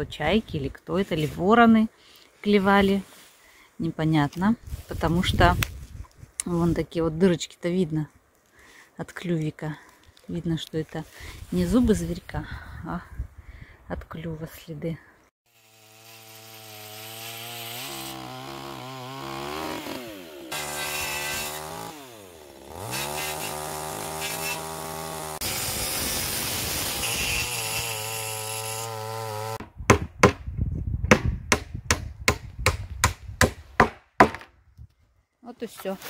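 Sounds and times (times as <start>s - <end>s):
chainsaw cutting wood: 15.5s - 30.1s.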